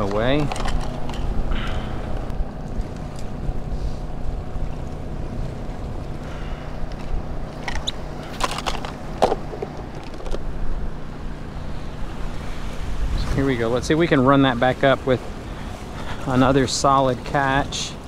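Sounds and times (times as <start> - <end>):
plastic tackle box clicks and rattles: 0.0 - 1.3, 7.6 - 10.4
generator engine hum: 0.0 - 18.0.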